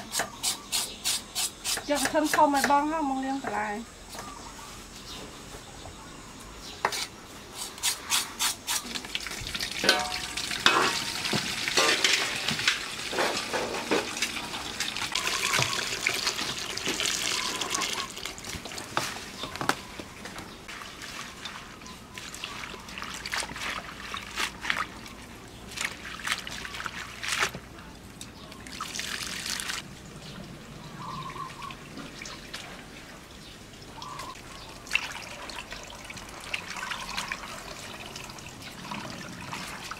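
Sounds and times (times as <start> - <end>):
vegetables washed by hand: 7.6 - 20.0, 20.7 - 27.7
tap water splashing into metal basin: 8.9 - 19.7.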